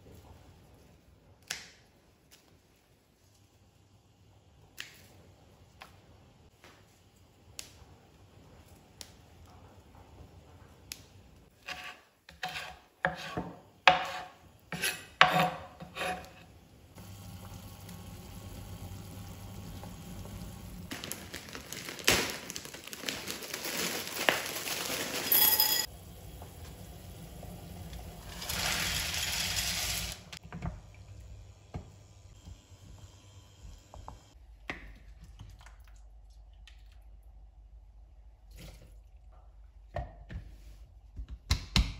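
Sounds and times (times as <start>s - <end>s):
plastic bag rustling: 20.9s - 25.9s.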